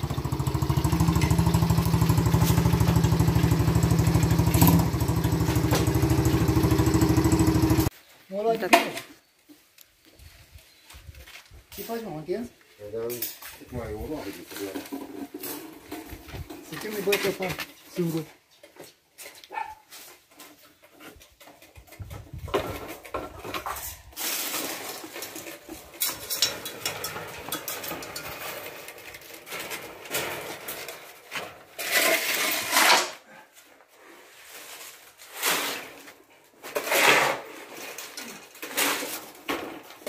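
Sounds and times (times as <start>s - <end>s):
metal objects clattering: 14.4s - 17.5s, 21.2s - 33.2s.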